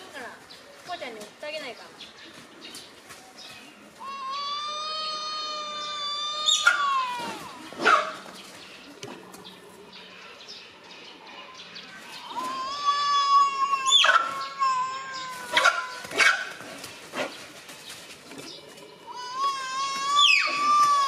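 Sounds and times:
tapir squealing: 4.0 - 7.7, 19.1 - 21.0.

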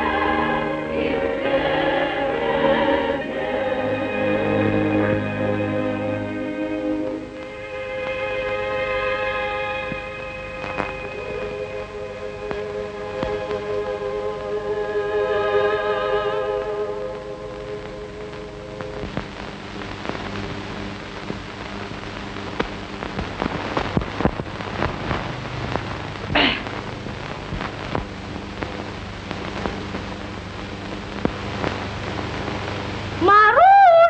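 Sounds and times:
faint music tones: 0.0 - 22.1
film soundtrack crackle and hiss: 0.0 - 34.0
low steady hum: 0.0 - 34.0
clicks and pops: 17.8 - 20.6, 22.4 - 30.0.

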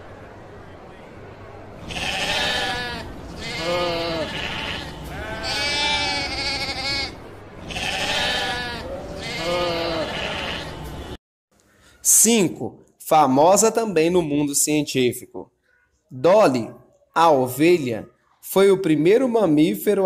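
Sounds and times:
faint outdoor background: 0.0 - 20.0
sheep bleating: 1.8 - 10.9.

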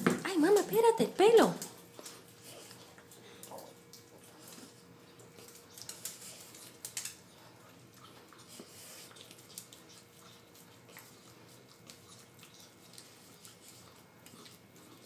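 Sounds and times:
dog licking ice cream: 7.6 - 15.0.

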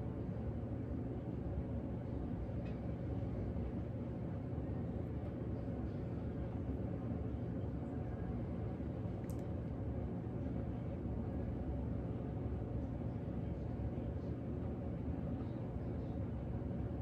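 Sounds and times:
low room noise rumble: 0.0 - 17.0
faint small click: 9.2 - 9.5.

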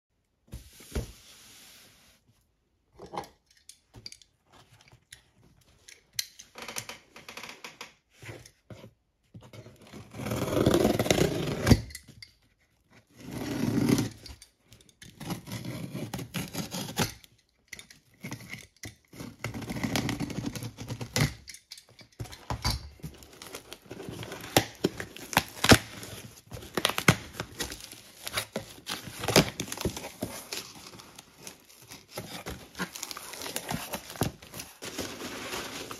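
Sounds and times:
packing tape tearing: 23.1 - 35.9.

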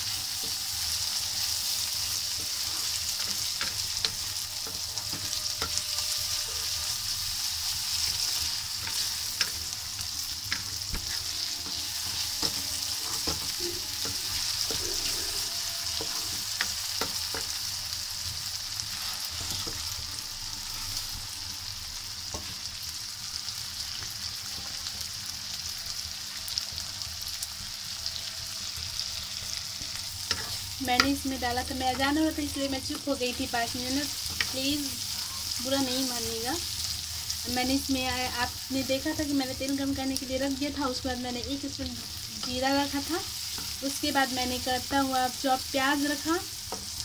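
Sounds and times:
vegetables sizzling in hot oil: 0.0 - 47.0
wooden spatula scraping pan: 10.5 - 17.5, 19.0 - 20.0.

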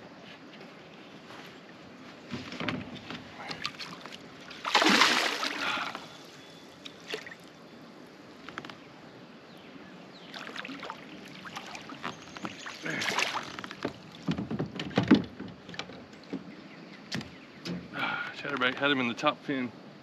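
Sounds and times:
fish splashing in water: 3.6 - 6.1, 10.3 - 13.7.

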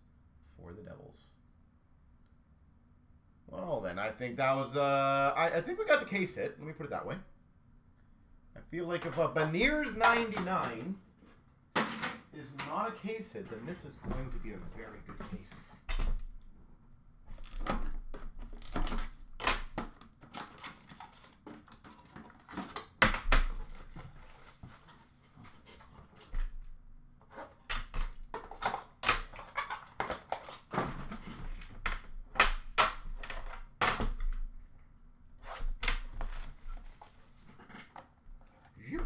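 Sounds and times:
hands handling card packaging: 35.4 - 37.6.

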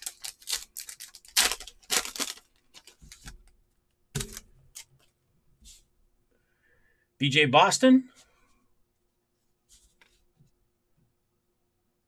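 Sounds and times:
foil wrapper crinkling and tearing: 0.0 - 3.5.

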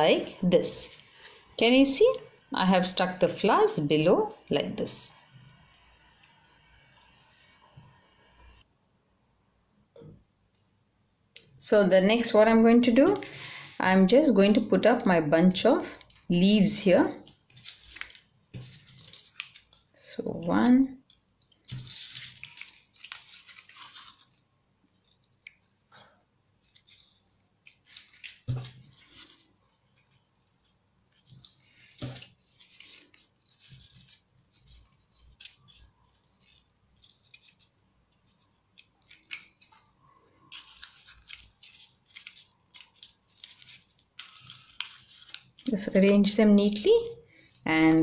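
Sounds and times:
paper rustling and scraping: 17.2 - 47.1.

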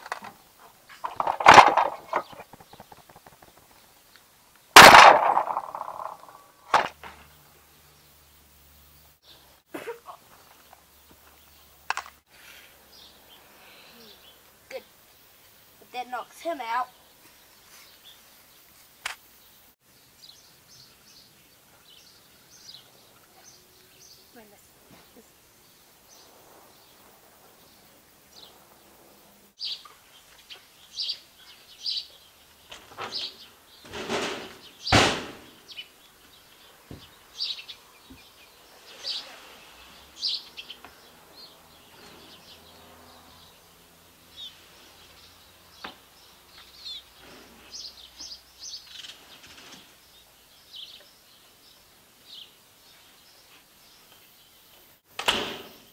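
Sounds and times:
outdoor background noise: 0.0 - 55.9
small birds chirping: 0.0 - 55.9
loud sharp knock: 34.0 - 35.5.

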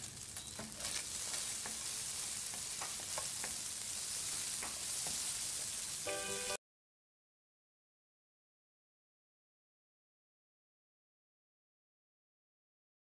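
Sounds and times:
sausages sizzling in oil: 0.0 - 6.6
spatula scraping and tapping pan: 0.4 - 5.9.

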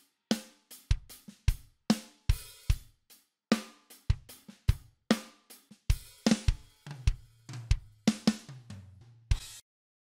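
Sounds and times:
drum kit playing groove: 0.0 - 9.6.

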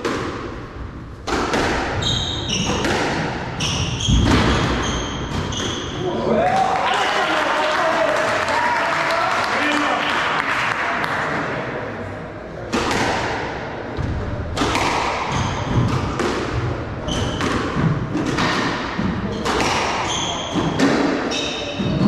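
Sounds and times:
squash ball hits echoing: 0.0 - 6.6, 12.6 - 22.0
shoes squeaking on wooden floor: 2.0 - 6.0, 15.3 - 16.1, 17.0 - 22.0.

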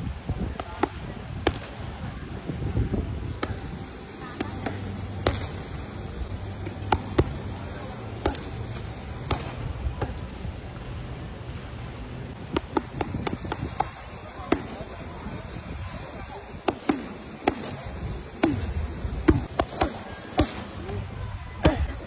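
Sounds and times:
boxing gloves smacking mitts: 6.6 - 7.4, 8.2 - 8.6, 9.2 - 10.2, 12.5 - 14.9, 16.5 - 17.8, 18.4 - 20.7.

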